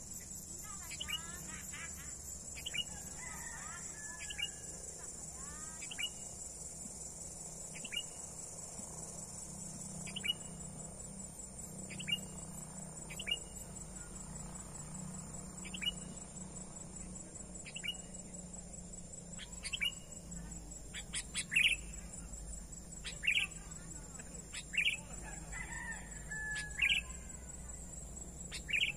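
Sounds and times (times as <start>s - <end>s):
high insect drone: 0.0s - 28.9s
bird calls: 15.6s - 16.2s, 17.6s - 18.2s, 19.4s - 20.3s, 20.9s - 22.2s, 22.9s - 27.4s, 28.5s - 28.9s.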